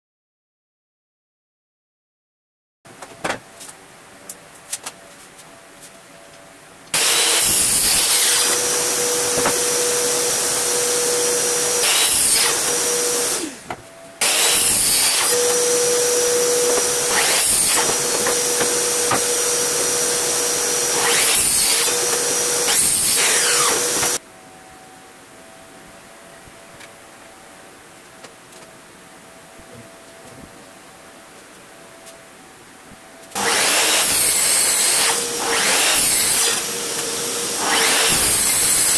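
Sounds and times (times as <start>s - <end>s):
boards being handled: 4.4s - 6.4s, 16.5s - 24.2s
miter saw whining: 6.9s - 24.2s, 33.2s - 38.9s.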